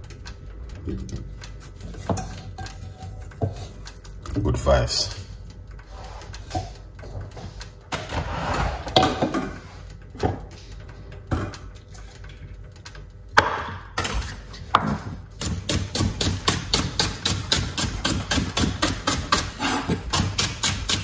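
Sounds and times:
kitchen knocks and clatter: 1.9s - 4.4s, 7.9s - 9.6s, 11.2s - 11.7s, 13.4s - 21.0s
knife chopping on wooden board: 15.4s - 21.0s.

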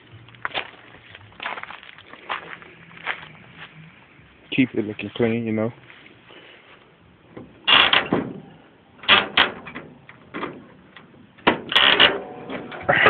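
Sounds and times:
metal car hood clunking: 7.3s - 8.4s.

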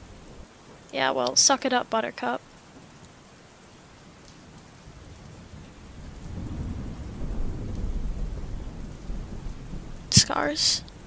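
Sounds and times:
steady rain: 0.0s - 11.0s
thunder rumbling: 4.9s - 11.0s.

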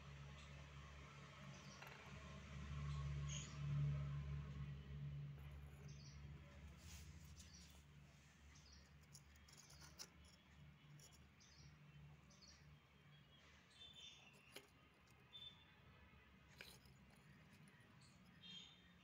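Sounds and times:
faint bird chirps: 15.3s - 15.8s, 18.0s - 19.0s.

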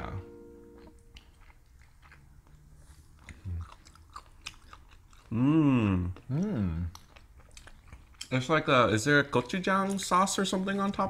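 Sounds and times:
chewing and biting: 0.6s - 11.0s
person humming mmm: 3.3s - 3.8s, 5.3s - 6.9s.

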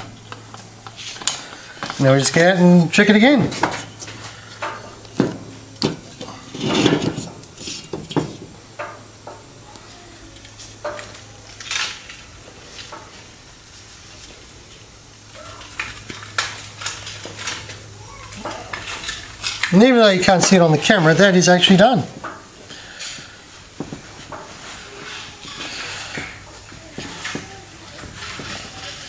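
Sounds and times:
metal tools clinking and scraping: 15.4s - 23.4s.

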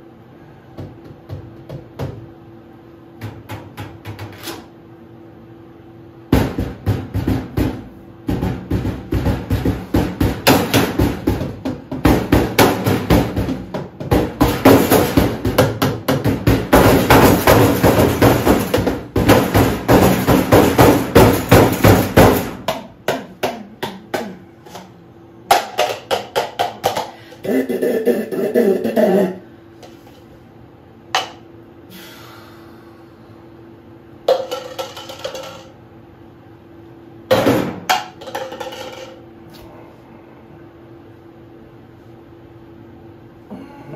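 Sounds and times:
steady hum: 0.0s - 43.9s
percussion music of rapid knocks: 6.3s - 24.4s, 25.5s - 27.2s, 34.3s - 35.8s, 37.3s - 39.2s.

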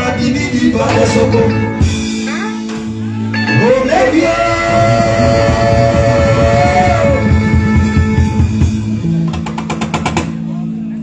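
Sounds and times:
steady drum beat: 0.8s - 3.0s, 4.6s - 10.5s.

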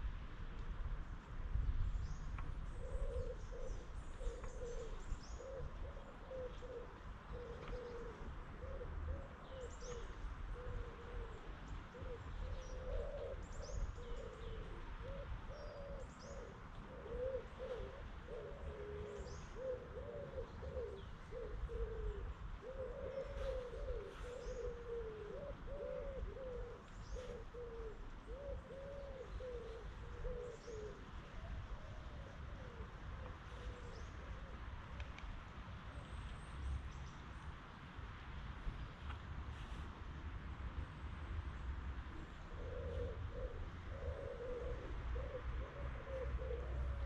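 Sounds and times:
pigeons cooing: 2.7s - 34.7s, 42.4s - 47.0s.

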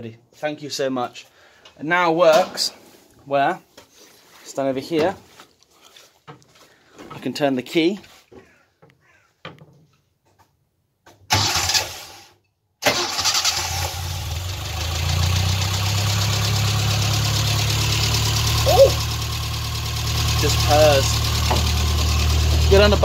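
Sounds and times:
car engine cranking and running: 11.3s - 12.2s, 12.8s - 23.0s.

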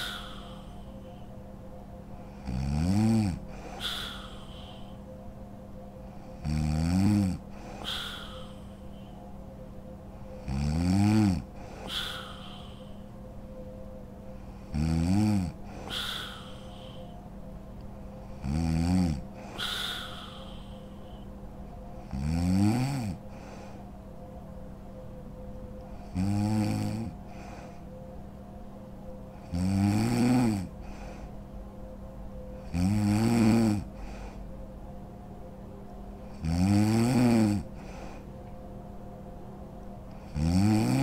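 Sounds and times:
woman snoring: 0.0s - 1.2s, 2.2s - 5.1s, 6.2s - 9.2s, 10.2s - 13.1s, 14.4s - 17.2s, 18.2s - 21.2s, 22.0s - 23.8s, 26.0s - 27.9s, 29.4s - 31.2s, 32.6s - 34.2s, 36.3s - 38.2s, 40.1s - 41.0s
soft breath: 0.0s - 2.5s, 3.3s - 6.5s, 7.1s - 10.5s, 11.4s - 14.8s, 15.5s - 18.5s, 19.2s - 22.0s, 23.1s - 25.2s, 27.0s - 29.3s, 30.7s - 32.7s, 33.8s - 34.9s, 37.6s - 39.2s.

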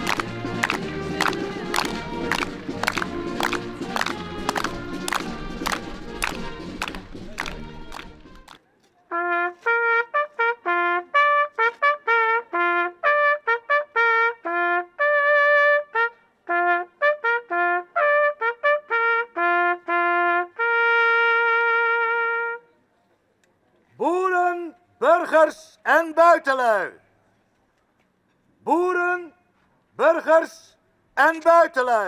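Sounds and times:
solo trumpet fanfare: 0.0s - 8.5s, 9.1s - 22.7s.

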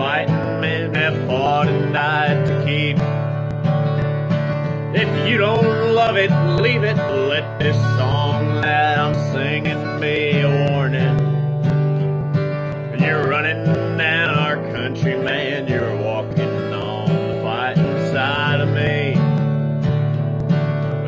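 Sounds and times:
man singing: 0.0s - 4.0s, 4.8s - 11.6s, 12.5s - 19.7s
acoustic guitar strummed: 0.0s - 21.0s.

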